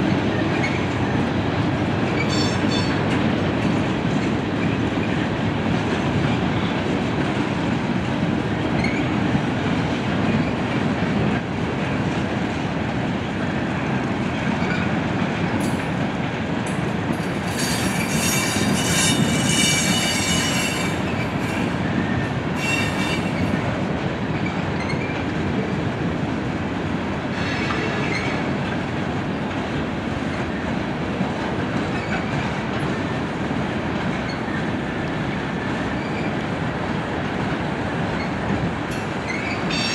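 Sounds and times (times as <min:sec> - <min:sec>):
train wheels rumbling on rail: 0:00.0 - 0:39.9
high-pitched wheel squealing: 0:17.5 - 0:21.1, 0:39.3 - 0:39.9.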